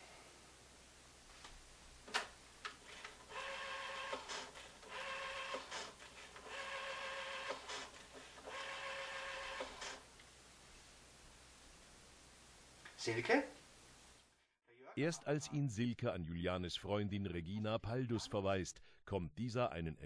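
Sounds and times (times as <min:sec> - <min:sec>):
rotary dial whirring back: 0:02.8 - 0:10.0.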